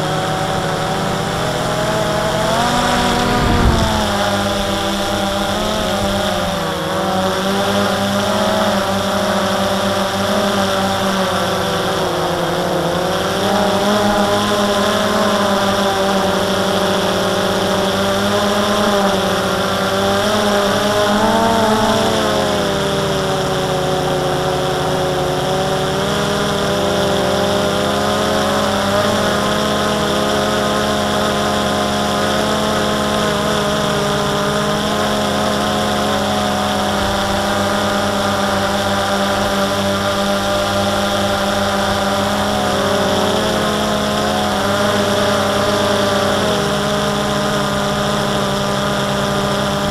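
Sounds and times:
drone propellers whining: 0.0 - 9.1, 20.2 - 24.6, 32.4 - 49.9.

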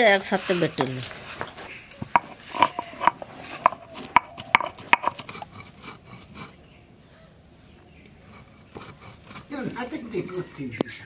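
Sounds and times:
peppercorns cracking under stone: 0.0 - 5.5
stone rolling and scraping on stone: 0.0 - 6.7, 8.1 - 10.6.

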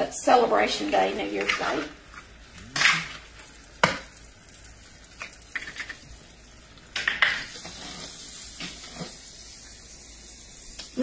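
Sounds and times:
eggs frying in butter: 0.0 - 11.0
steady high sizzle: 0.0 - 11.0
egg cracking knocks and taps: 3.8 - 4.1.

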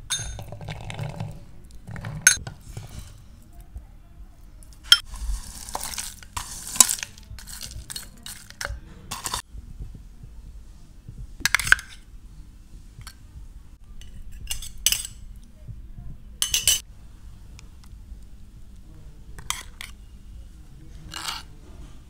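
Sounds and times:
plate and spoon clinking on bowl: 16.4 - 16.8.

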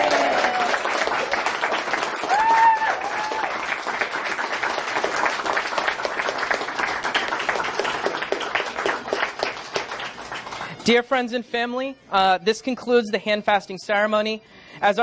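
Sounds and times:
person whooping: 0.0 - 0.8, 2.3 - 3.6
people clapping: 0.0 - 11.0.

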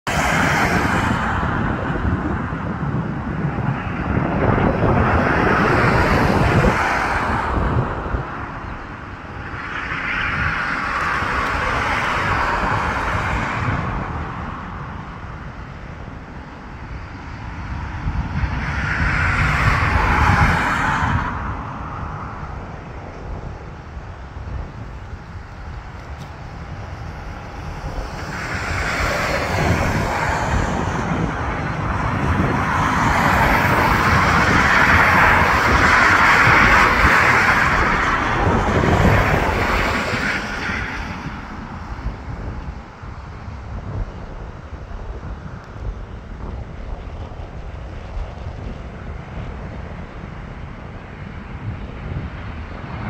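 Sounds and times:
tyre and engine noise: 0.0 - 53.0
vehicles passing: 0.0 - 53.0
wind rumble on microphone: 0.0 - 53.0.

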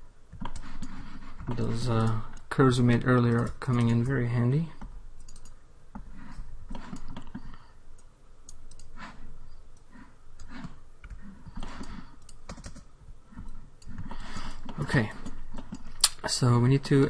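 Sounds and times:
keyboard keys clicking: 5.2 - 5.6, 12.2 - 12.8.

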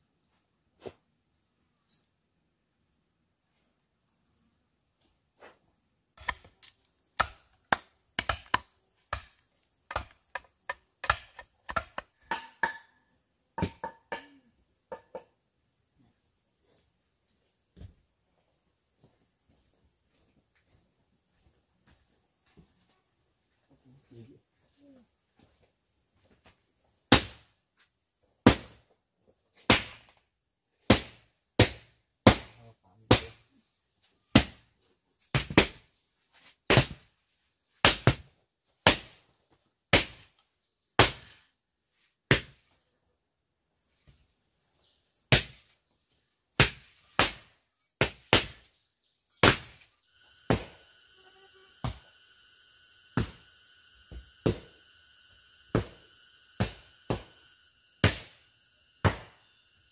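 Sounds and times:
droning hum with fixed tones: 50.1 - 59.9.

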